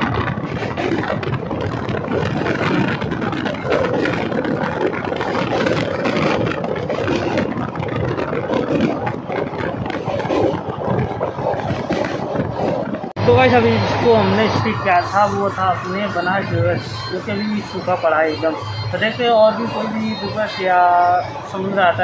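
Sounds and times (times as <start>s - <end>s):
train wheels rumbling and rattling: 0.0s - 22.0s.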